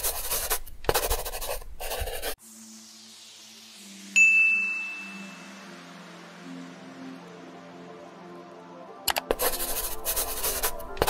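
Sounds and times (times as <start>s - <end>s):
pen scribbling on paper: 0.0s - 2.4s, 9.1s - 11.0s
soft synth music: 2.2s - 11.0s
bright chime: 4.2s - 6.4s.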